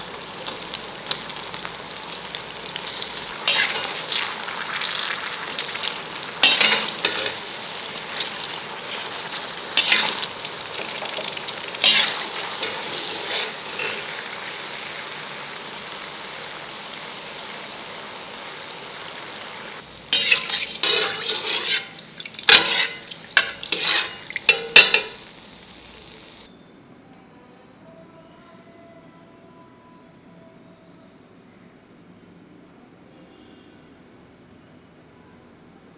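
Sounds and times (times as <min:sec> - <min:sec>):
food deep-frying in oil: 0:00.0 - 0:26.5
metal skimmer scraping pan: 0:03.3 - 0:04.4, 0:05.0 - 0:14.3, 0:20.1 - 0:25.2.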